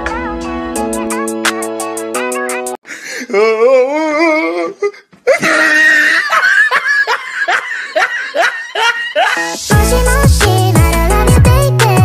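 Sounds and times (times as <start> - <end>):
person laughing loudly: 5.3 - 9.6.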